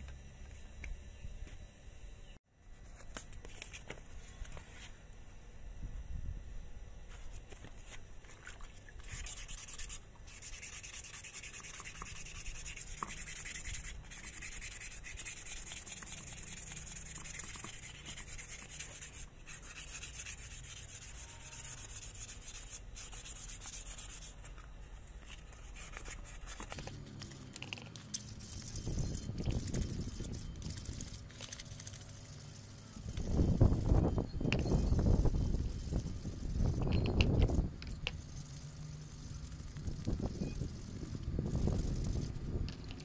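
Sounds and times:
sandpaper scratching: 9.0 - 24.6, 25.3 - 42.5.

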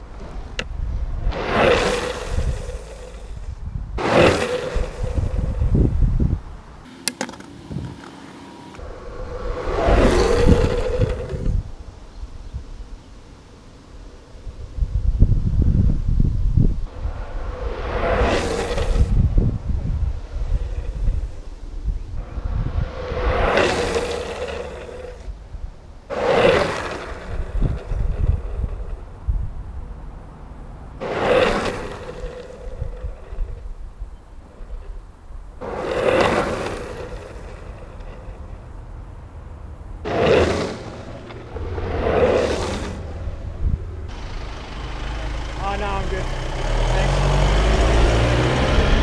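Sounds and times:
wind on microphone: 0.0 - 6.8, 7.7 - 8.0, 8.8 - 13.2, 14.0 - 30.0, 36.2 - 44.1
wheels rolling on asphalt: 0.0 - 49.0
skateboard wheels squealing slide: 1.2 - 5.8, 7.5 - 11.8, 17.2 - 19.4, 22.4 - 25.3, 26.1 - 29.0, 31.0 - 35.0, 35.6 - 38.7, 40.0 - 43.5.

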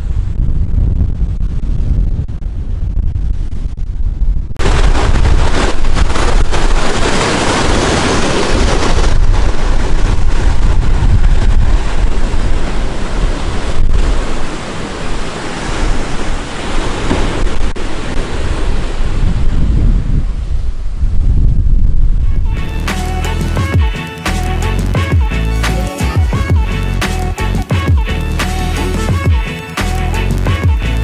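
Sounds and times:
wind buffeting microphone: 0.0 - 22.8
ocean waves breaking over rocks: 4.6 - 21.1.

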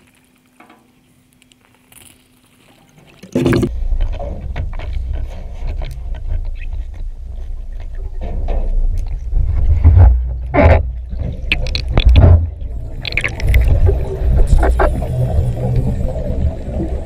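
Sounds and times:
underwater rumble: 3.3 - 17.0
air bubbles rushing: 9.0 - 17.0.

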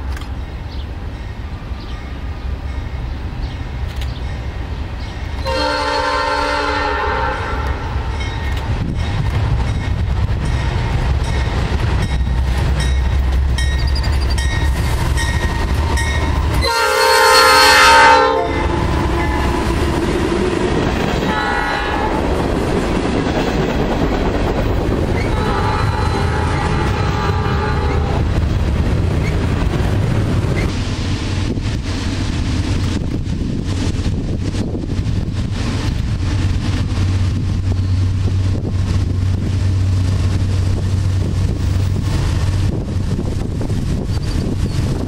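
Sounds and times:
freight cars rolling on rails: 0.0 - 45.0
locomotive air horn blasts: 5.4 - 8.1, 16.6 - 19.8, 21.3 - 22.3, 25.3 - 28.3
locomotive low rumble: 7.3 - 45.0.

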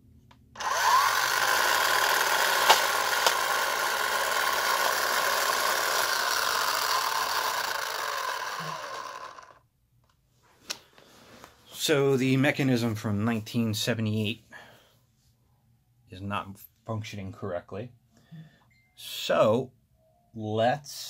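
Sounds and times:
toy electric motor running: 0.6 - 9.6
sharp clicks: 2.5 - 3.6.

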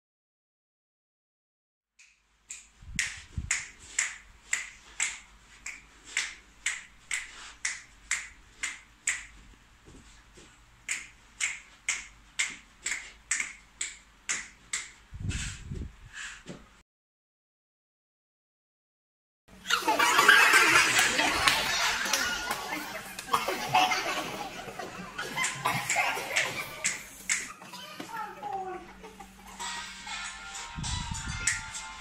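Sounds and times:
fingers snapping: 2.0 - 9.3, 10.9 - 14.9, 26.8 - 27.5.

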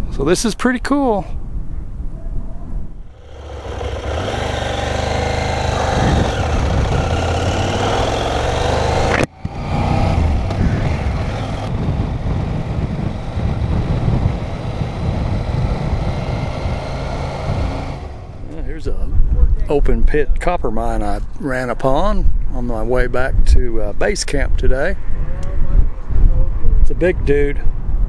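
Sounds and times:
wind rushing: 2.8 - 19.9
motorcycle engine running: 3.1 - 18.7.

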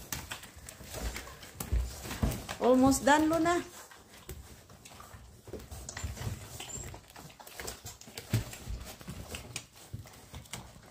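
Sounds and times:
puppies suckling and shuffling: 0.0 - 10.9
puppies whimpering and squeaking: 0.0 - 10.9.

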